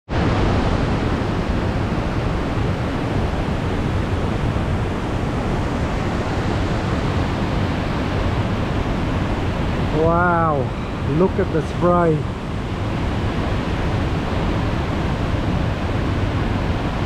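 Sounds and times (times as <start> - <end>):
waterfall rushing: 0.1 - 17.0.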